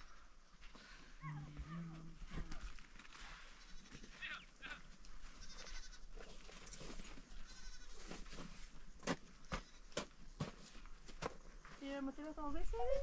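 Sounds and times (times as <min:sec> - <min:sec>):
goats bleating: 0:05.4 - 0:06.1, 0:07.4 - 0:07.9.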